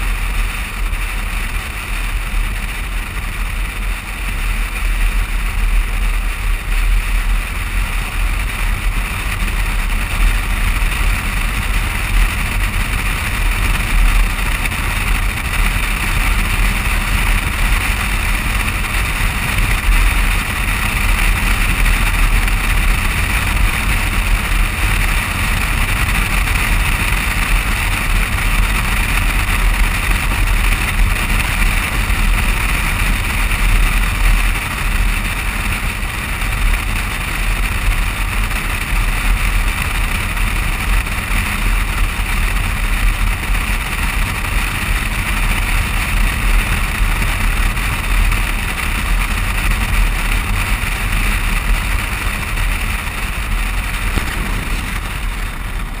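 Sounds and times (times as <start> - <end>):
tyres on asphalt: 0.0 - 56.0
wind buffeting camera: 43.6 - 56.0.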